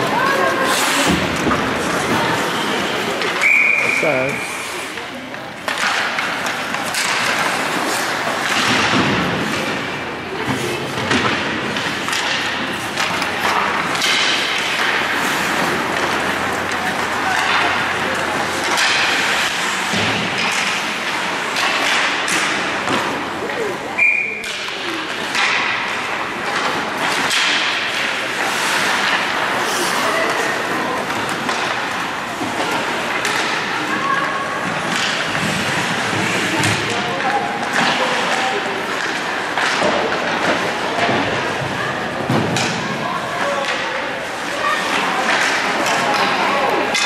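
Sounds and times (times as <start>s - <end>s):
skates scraping ice: 0.0s - 47.0s
knocks against hockey boards: 5.7s - 23.1s.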